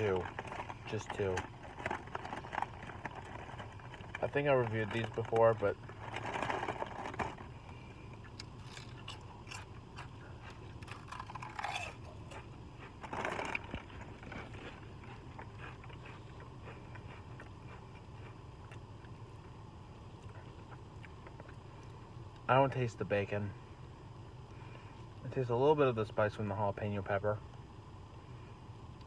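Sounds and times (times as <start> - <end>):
potato chips being chewed: 0.0 - 7.5, 8.2 - 19.2.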